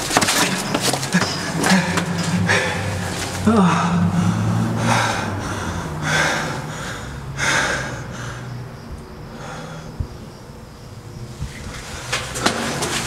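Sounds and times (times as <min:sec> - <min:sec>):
man breathing hard: 0:00.4 - 0:10.3.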